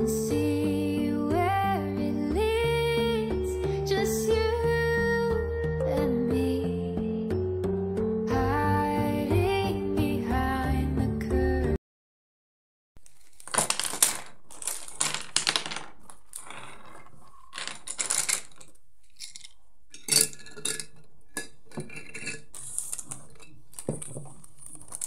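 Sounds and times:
coloured pencils clattering: 13.0 - 25.0
packet rustling: 13.0 - 25.0.

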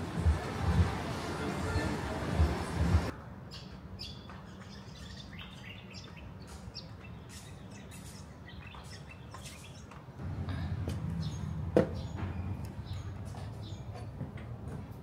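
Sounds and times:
small birds chirping: 3.5 - 14.2.

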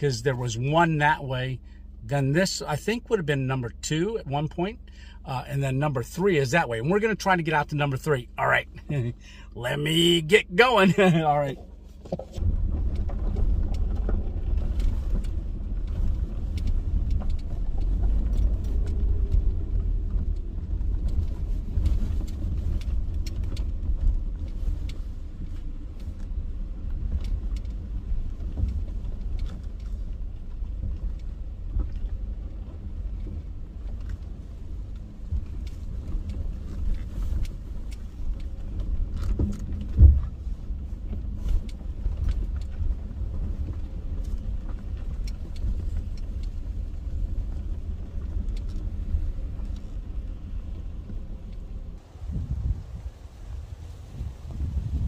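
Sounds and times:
car driving on dirt track: 0.0 - 55.0
rattles and clicks: 11.5 - 51.8.

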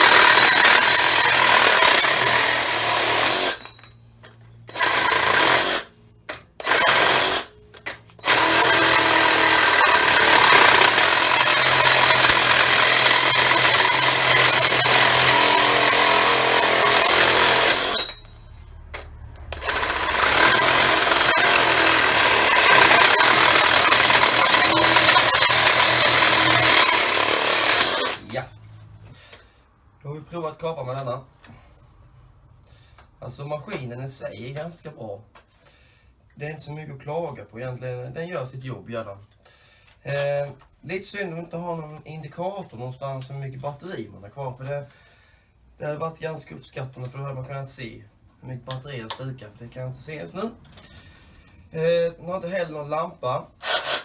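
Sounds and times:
reciprocating saw cutting steel pipe: 0.0 - 3.6, 8.2 - 18.3, 19.6 - 28.4.

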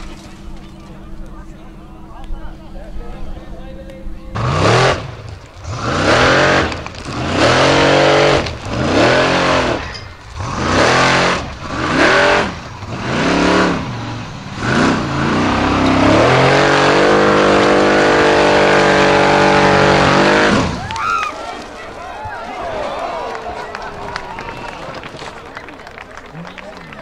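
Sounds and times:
buggy engine revving hard: 4.3 - 20.9.

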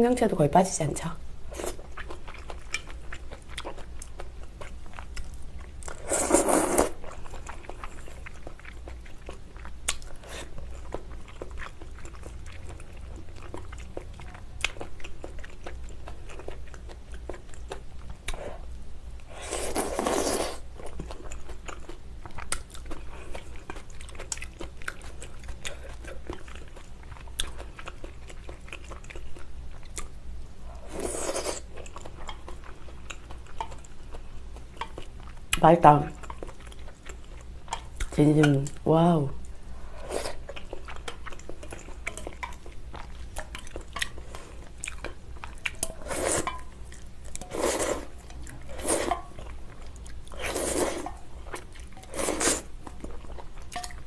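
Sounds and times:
chewing with soft crunches: 1.5 - 54.0
loud slurp: 6.0 - 7.0.

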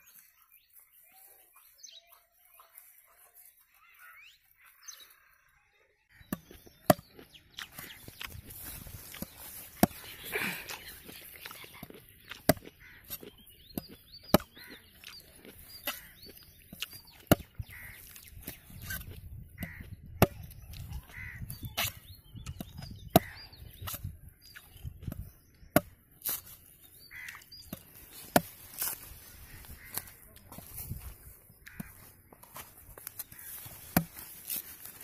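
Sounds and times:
machete chopping coconut husk: 6.3 - 10.6, 12.3 - 14.6, 16.8 - 17.6, 18.4 - 20.6, 25.8 - 26.6, 27.7 - 29.0, 33.0 - 35.0.

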